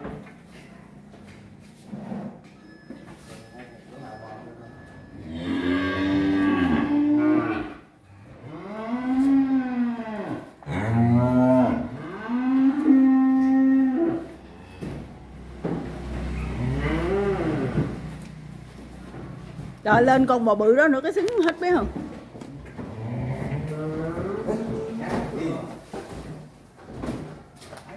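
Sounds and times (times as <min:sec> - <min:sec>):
cattle mooing: 0:05.2 - 0:15.0, 0:16.2 - 0:18.1, 0:22.8 - 0:25.3.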